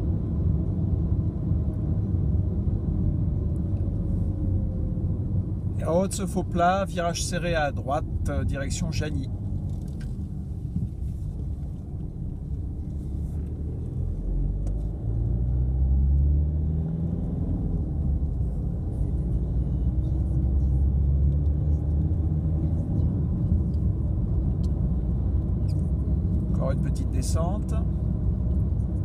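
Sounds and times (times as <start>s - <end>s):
road rumble: 0.0s - 29.0s
car engine accelerating: 9.2s - 29.0s.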